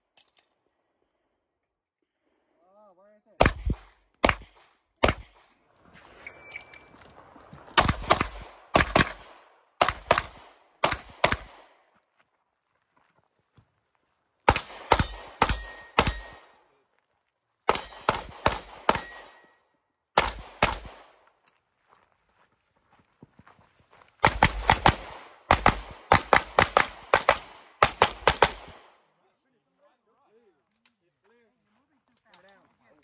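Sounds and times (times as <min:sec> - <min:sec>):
rapid pistol shots: 0:03.4 - 0:05.6, 0:07.8 - 0:11.7, 0:14.5 - 0:16.5, 0:17.7 - 0:19.5, 0:20.2 - 0:21.2, 0:24.2 - 0:29.0.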